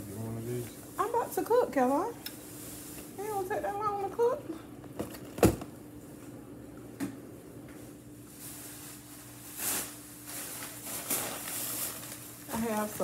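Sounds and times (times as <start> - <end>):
grocery bags rustling: 0.0 - 4.4, 7.7 - 13.0
faint steady hum: 0.0 - 13.0.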